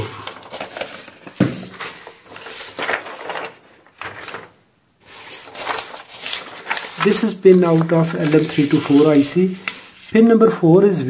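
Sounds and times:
paper rustling: 0:00.0 - 0:10.6.

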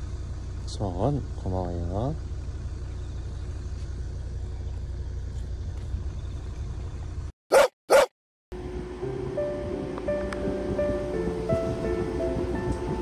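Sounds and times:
low engine rumble: 0:00.0 - 0:07.3, 0:08.5 - 0:13.0
dog barks: 0:07.5 - 0:08.1
background music: 0:08.9 - 0:13.0.

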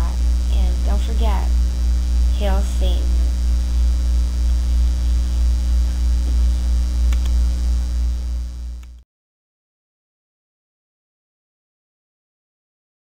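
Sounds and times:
electrical mains hum: 0:00.0 - 0:09.0.

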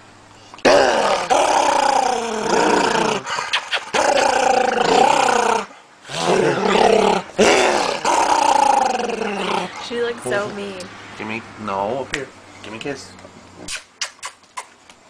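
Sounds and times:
dog growling playfully: 0:00.6 - 0:10.8.

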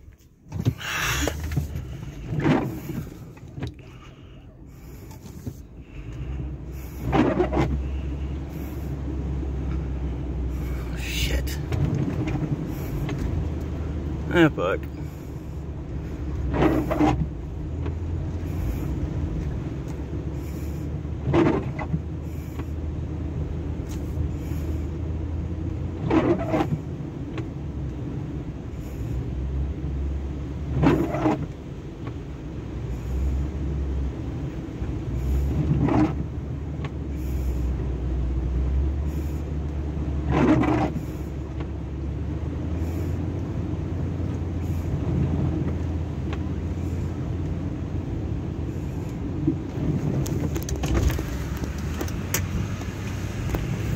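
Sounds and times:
windshield wiper sweeping: 0:00.0 - 0:04.1, 0:04.7 - 0:53.9
car driving through flood water: 0:00.0 - 0:53.9.

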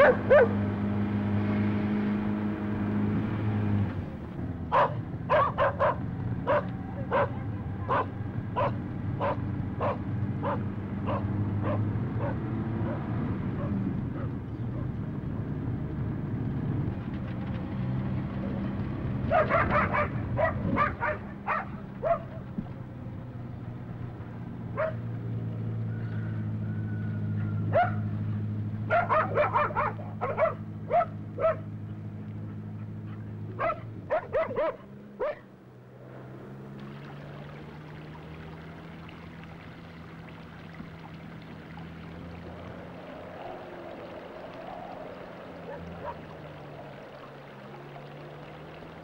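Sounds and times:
dog barking: 0:00.0 - 0:00.6, 0:04.7 - 0:14.9, 0:19.3 - 0:22.4, 0:24.8 - 0:25.0, 0:27.4 - 0:28.1, 0:28.9 - 0:31.7, 0:33.0 - 0:35.5, 0:45.7 - 0:46.2
vehicle engine humming: 0:00.0 - 0:49.0
water splashing into fountain basin: 0:36.5 - 0:49.0.

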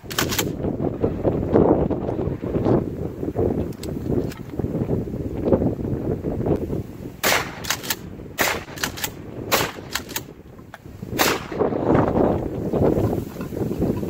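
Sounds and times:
metallic clicks of gun handling: 0:00.0 - 0:00.6, 0:03.7 - 0:04.5, 0:07.6 - 0:08.0, 0:08.8 - 0:09.2, 0:09.9 - 0:10.8
wind on microphone: 0:00.0 - 0:14.0.

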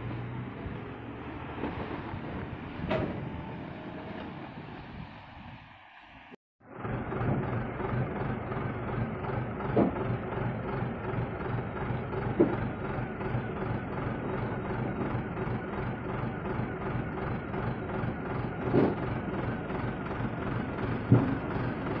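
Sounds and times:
diesel truck engine running: 0:06.6 - 0:22.0.

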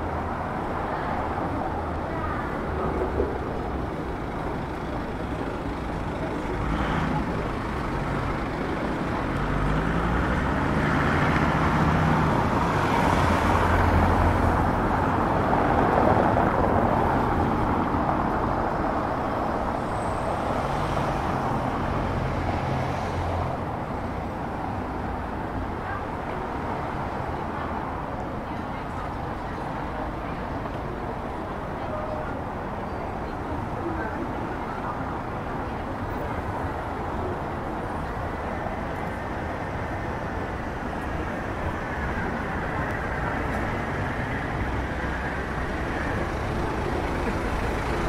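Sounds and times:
road traffic noise: 0:00.0 - 0:48.0.

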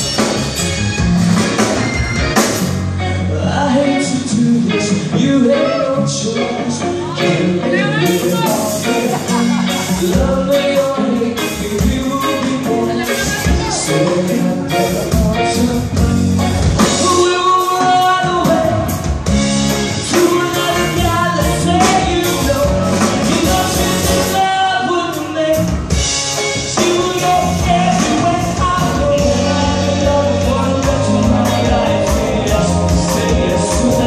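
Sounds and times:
bass guitar: 0:00.0 - 0:34.0
drum kit: 0:00.0 - 0:34.0
keyboards: 0:00.0 - 0:34.0
person singing: 0:03.2 - 0:19.2, 0:19.9 - 0:25.8, 0:26.7 - 0:34.0.

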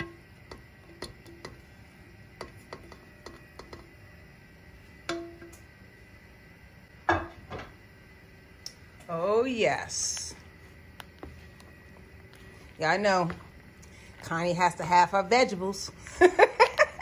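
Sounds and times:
spatula tapping and scraping dish: 0:02.4 - 0:03.9.

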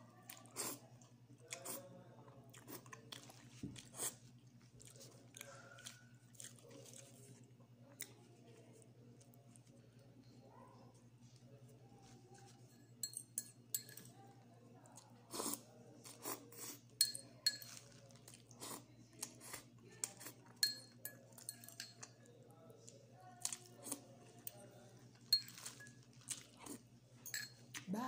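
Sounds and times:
person chewing: 0:02.5 - 0:07.4, 0:25.4 - 0:26.8
fork clinking on ceramic bowl: 0:12.7 - 0:14.1, 0:17.0 - 0:17.9, 0:20.6 - 0:22.1, 0:25.3 - 0:26.0, 0:27.2 - 0:27.6.

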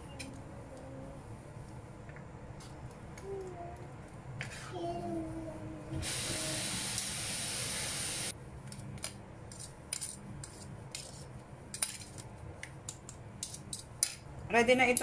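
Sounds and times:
steady hiss: 0:06.0 - 0:08.4.

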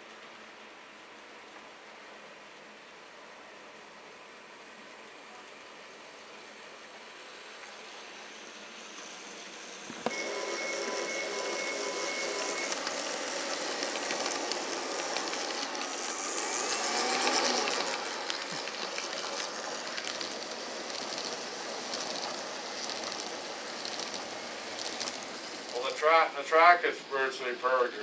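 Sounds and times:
model train wheels rolling: 0:07.5 - 0:28.0.

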